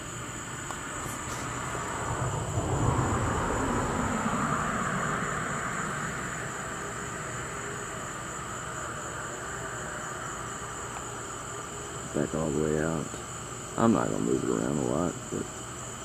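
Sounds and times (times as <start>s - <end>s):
insects chirring: 0.0s - 16.0s
vehicle passing by: 1.0s - 8.0s.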